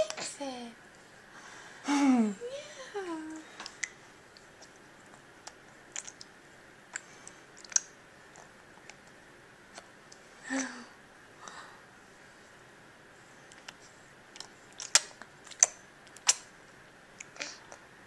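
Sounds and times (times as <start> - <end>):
baby eating off a spoon: 3.6 - 9.1, 13.5 - 16.5.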